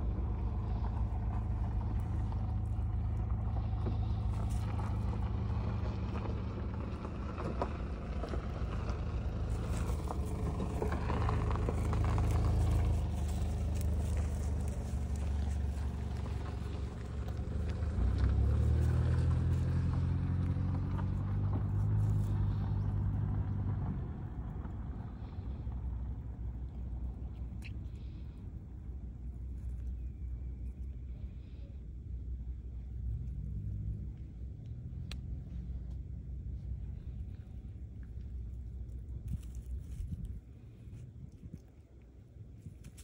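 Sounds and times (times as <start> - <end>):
engine humming: 0.0 - 43.0.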